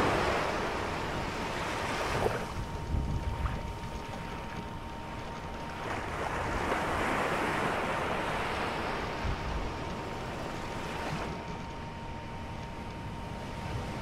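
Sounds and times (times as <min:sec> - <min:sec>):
rushing surf-like noise: 0:00.0 - 0:03.6, 0:05.8 - 0:11.4
thin high hum: 0:00.0 - 0:14.0.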